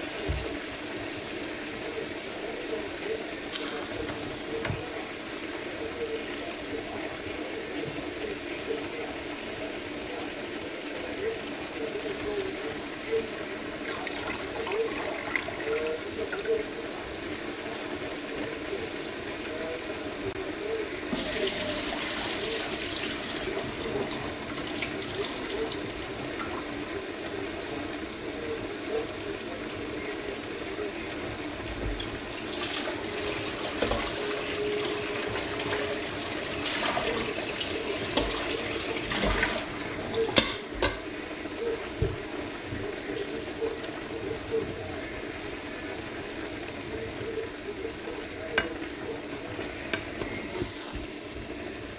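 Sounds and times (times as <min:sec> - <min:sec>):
noodles sizzling in a pan: 0:00.0 - 0:44.3
steady hum: 0:00.0 - 0:51.9.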